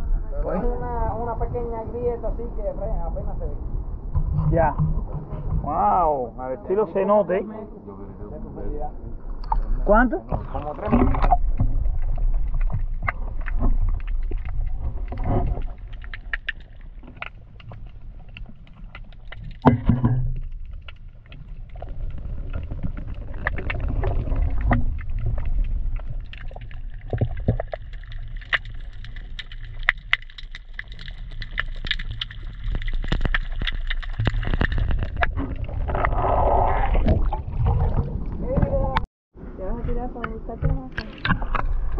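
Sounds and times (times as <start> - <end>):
muffled underwater rumble: 0.0 - 41.9
water splashing: 9.1 - 41.9
clicks and crackles: 10.3 - 37.4.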